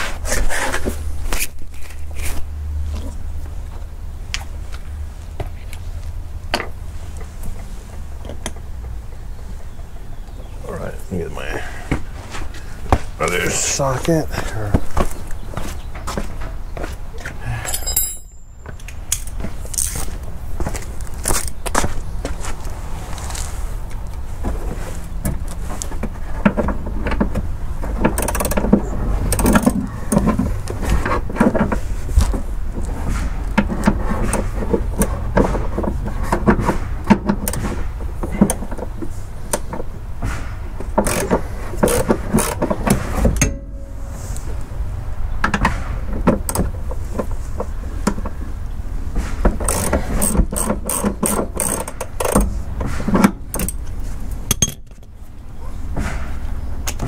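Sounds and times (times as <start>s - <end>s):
tools knocking against metal: 17.6s - 18.4s
socket ratchet clicking: 49.6s - 52.4s.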